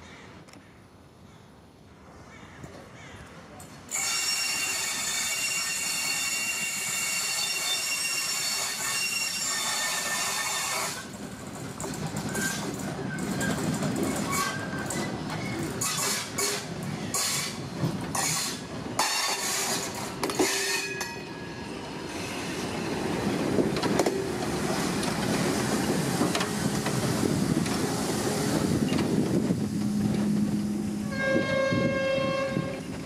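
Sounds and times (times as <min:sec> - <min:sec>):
locomotive rumble and hiss: 0:21.5 - 0:33.0.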